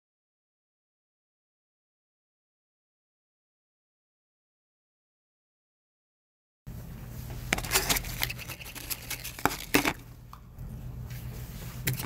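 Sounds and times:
steady low hum: 0:06.7 - 0:12.0
rustling: 0:07.1 - 0:10.0.

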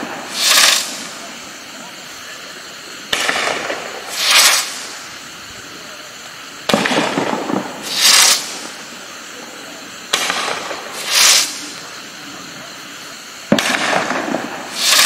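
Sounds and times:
firework tube launching thump: 0:00.0 - 0:01.1, 0:03.1 - 0:05.0, 0:06.7 - 0:08.8, 0:10.1 - 0:11.8, 0:13.5 - 0:15.0
firework breaking with hiss: 0:00.0 - 0:15.0.

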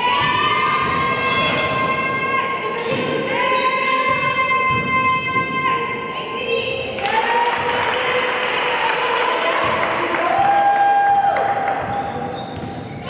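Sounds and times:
basketball bouncing on court: 0:00.0 - 0:05.8, 0:09.5 - 0:13.0.

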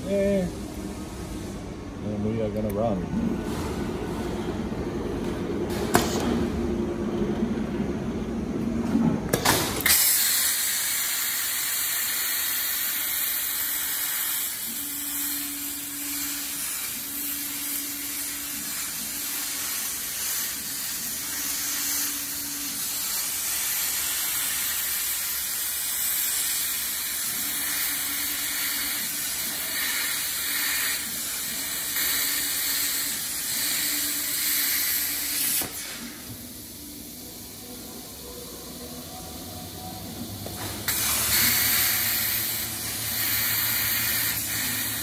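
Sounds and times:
low machine hum: 0:00.0 - 0:09.9, 0:35.9 - 0:45.0
plasma torch hissing: 0:09.3 - 0:37.9, 0:40.2 - 0:45.0.

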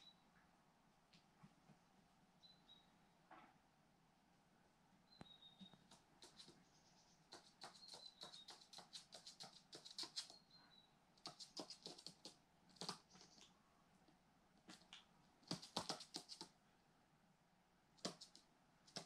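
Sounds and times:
bird claws tapping on hard floor: 0:15.5 - 0:16.5.

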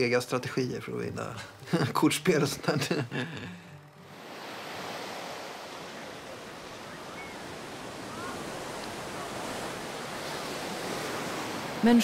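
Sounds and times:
sea surf on a beach: 0:03.9 - 0:12.0
faint high calls: 0:05.8 - 0:10.0.

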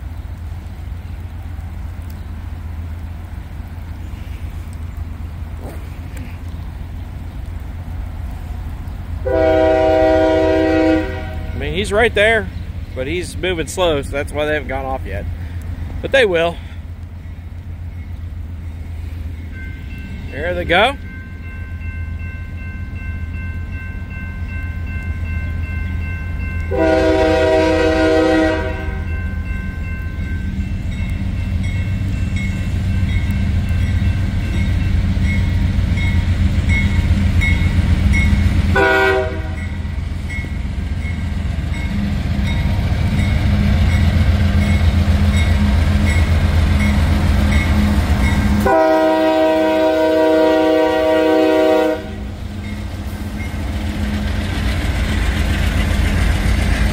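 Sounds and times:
diesel locomotive engine rumbling: 0:00.0 - 0:56.9
train horn blasts: 0:09.2 - 0:11.7, 0:26.6 - 0:29.2, 0:38.7 - 0:39.9, 0:47.6 - 0:52.4
crossing bell ringing: 0:17.2 - 0:54.4.

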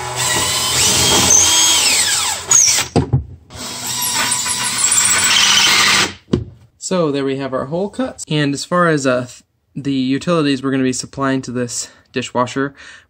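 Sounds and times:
cordless drill whining: 0:00.0 - 0:02.9, 0:03.5 - 0:06.1.

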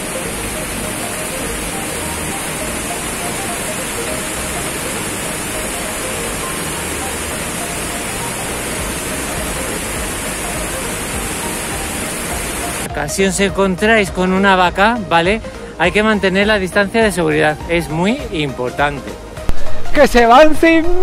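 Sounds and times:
waterfall rushing: 0:00.0 - 0:13.0.

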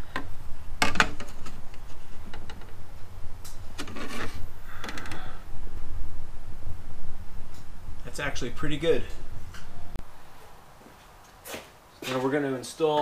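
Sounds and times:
low rumble: 0:00.0 - 0:10.4.

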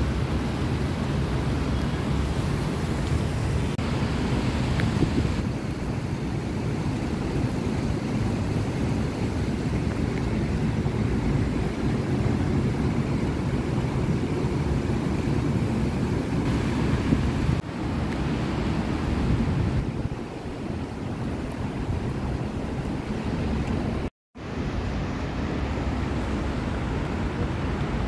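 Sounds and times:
wind buffeting microphone: 0:00.0 - 0:24.1.

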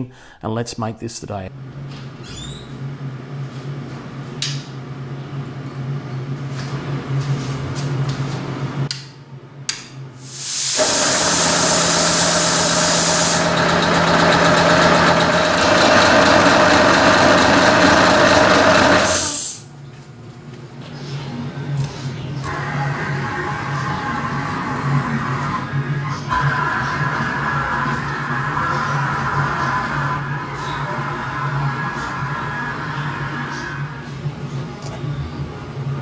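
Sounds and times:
air compressor running: 0:10.2 - 0:19.7.

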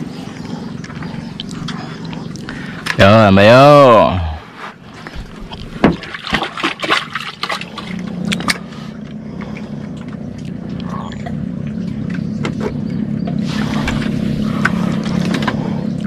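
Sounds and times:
engine droning: 0:00.0 - 0:16.0.

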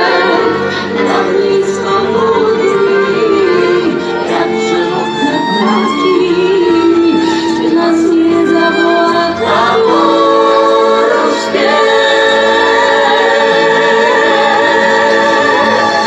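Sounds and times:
several voices singing together: 0:00.0 - 0:16.0.

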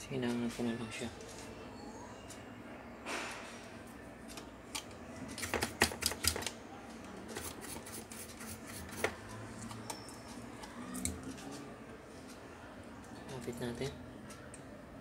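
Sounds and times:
hand tools clicking and tapping: 0:04.3 - 0:06.5.

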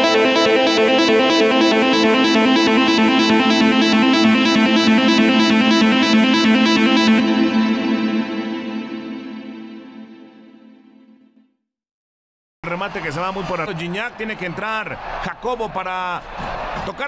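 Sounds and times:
instrumental music with steady pulse: 0:00.0 - 0:11.6.

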